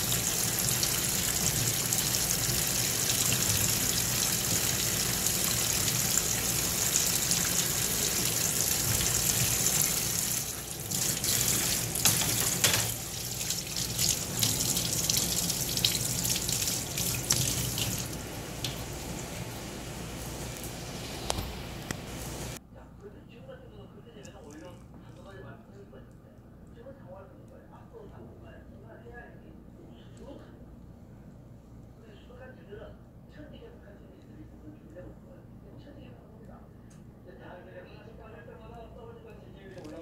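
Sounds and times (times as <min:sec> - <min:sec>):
faucet running into metal sink: 0:00.0 - 0:19.3.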